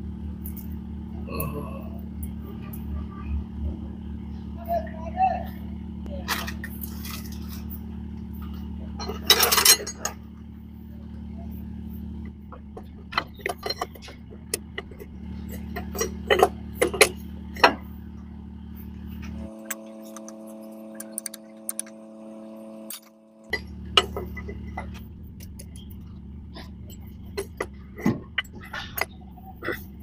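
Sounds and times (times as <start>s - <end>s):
steady low hum: 0.0s - 30.0s
spanner clinking on metal: 9.0s - 10.2s, 13.1s - 17.8s
higher steady tone: 17.1s - 27.8s.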